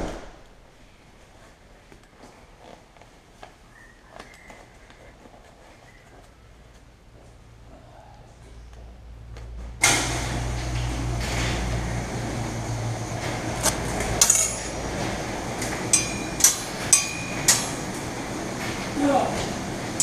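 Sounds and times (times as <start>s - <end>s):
steady low hum: 0.0s - 20.0s
metal clasps clinking: 14.2s - 14.9s, 15.9s - 17.8s.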